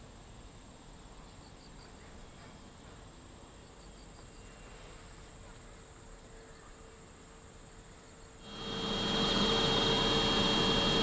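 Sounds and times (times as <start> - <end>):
insect chirps: 3.1 - 4.7
insects trilling: 6.1 - 11.0.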